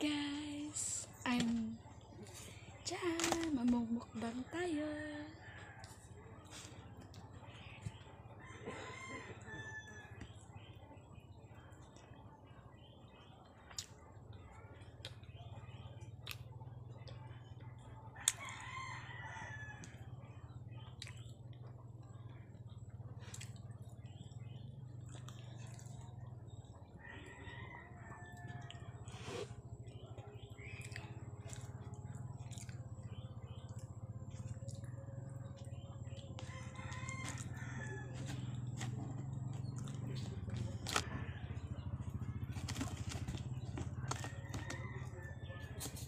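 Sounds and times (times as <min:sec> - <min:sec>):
steady low hum: 0:00.0 - 0:46.0
rooster crowing: 0:08.4 - 0:10.2, 0:18.3 - 0:19.9, 0:36.4 - 0:38.9, 0:44.0 - 0:46.0
chewing clicks: 0:16.1 - 0:17.2, 0:23.3 - 0:26.8, 0:28.4 - 0:41.1.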